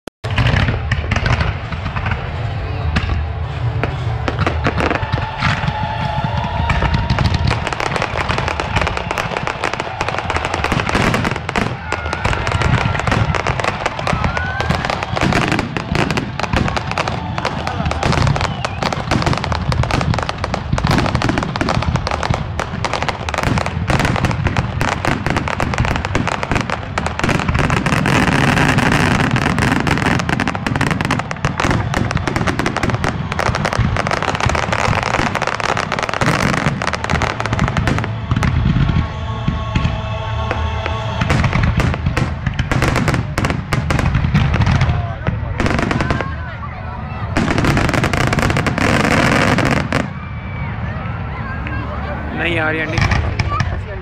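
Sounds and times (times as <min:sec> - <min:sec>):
firework bangs and crackles: 0:00.2 - 0:54.0
steady pitched tone: 0:37.0 - 0:42.6.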